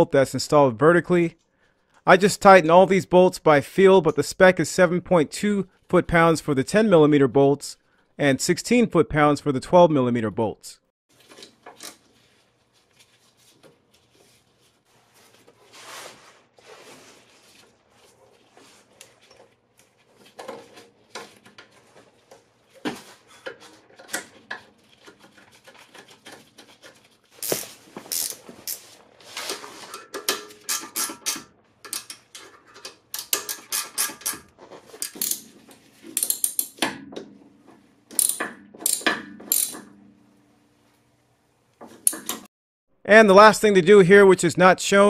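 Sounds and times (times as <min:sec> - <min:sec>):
ratchet wrench clicking: 0:27.4 - 0:28.8, 0:35.0 - 0:35.4, 0:36.2 - 0:36.8, 0:38.1 - 0:39.8.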